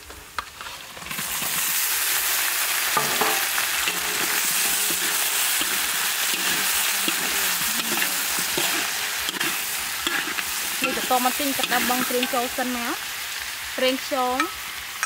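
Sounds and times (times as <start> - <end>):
prawns sizzling in a wok: 0.0 - 15.0
metal ladle scraping a wok: 2.8 - 13.2.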